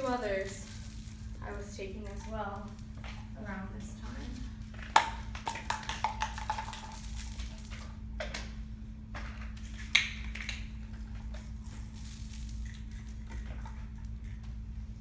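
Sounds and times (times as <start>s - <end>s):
pills clattering on concrete: 4.7s - 7.9s, 9.4s - 14.5s.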